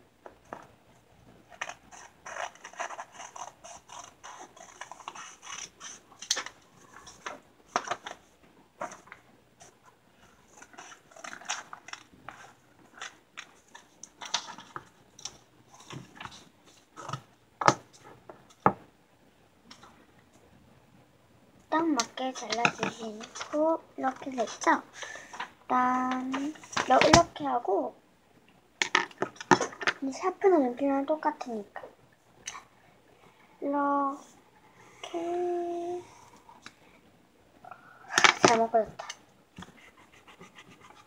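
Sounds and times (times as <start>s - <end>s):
paper rustling and crinkling: 1.4s - 9.2s, 10.2s - 17.3s, 22.0s - 27.3s
scissors snipping paper: 1.5s - 6.5s.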